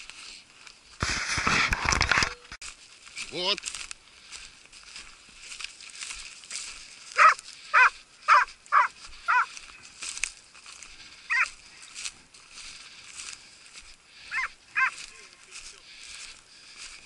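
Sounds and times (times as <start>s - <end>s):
hound yelping barks: 7.1s - 9.5s, 11.3s - 11.6s, 14.3s - 15.1s.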